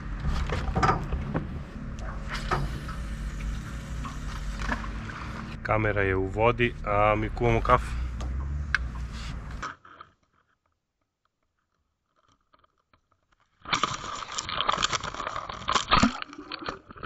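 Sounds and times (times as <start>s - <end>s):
camera crackling sloshing in water: 13.7s - 17.0s.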